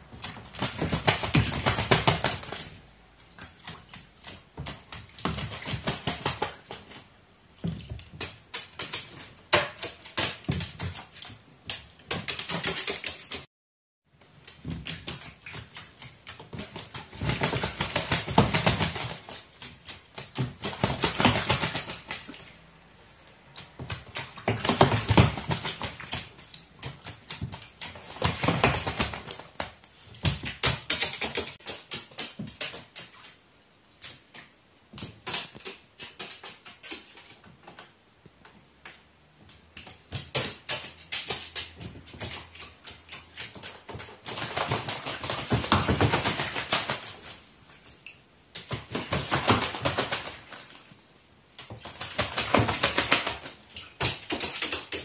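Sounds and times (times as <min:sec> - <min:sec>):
water splashing: 0:14.4 - 0:34.6, 0:39.8 - 0:55.0
bird wings beating: 0:48.6 - 0:50.7, 0:51.8 - 0:55.0.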